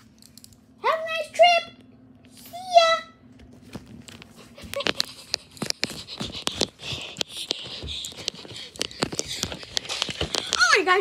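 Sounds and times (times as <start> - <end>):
plush toy taps and rustling: 3.7 - 10.8.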